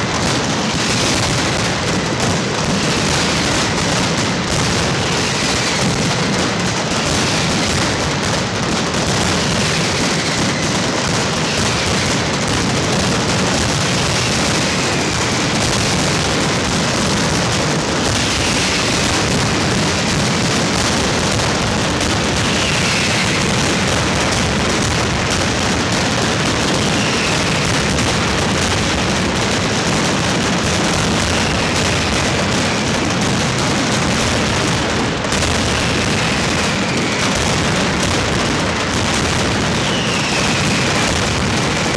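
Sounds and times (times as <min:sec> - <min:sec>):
firecrackers rattling bangs: 0:00.0 - 0:41.9
falling whistles: 0:39.8 - 0:40.9.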